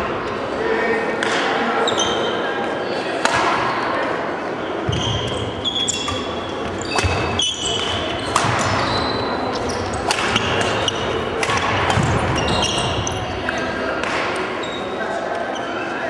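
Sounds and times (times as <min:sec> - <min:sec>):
shoes squeaking on wooden floor: 0:04.8 - 0:11.3, 0:11.9 - 0:13.6
racket striking shuttlecock: 0:06.0 - 0:08.9, 0:09.5 - 0:13.0.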